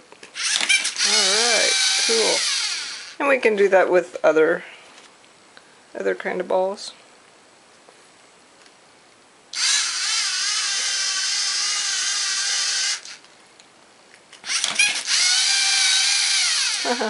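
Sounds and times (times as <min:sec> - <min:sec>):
servo motors whining: 0:00.4 - 0:03.2, 0:09.6 - 0:13.2, 0:14.4 - 0:17.0.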